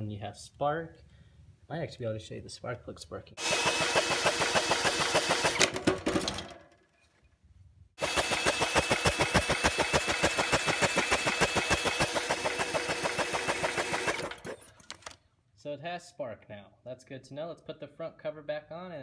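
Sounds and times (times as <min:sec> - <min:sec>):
cordless drill turning engine: 0:03.4 - 0:06.5, 0:08.0 - 0:15.2.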